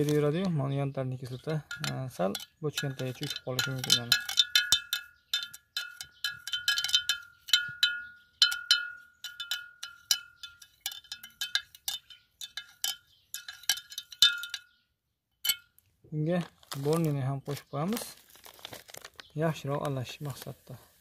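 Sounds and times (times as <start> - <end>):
metal spoon clinking in glass jar: 1.2 - 14.8, 15.4 - 15.8.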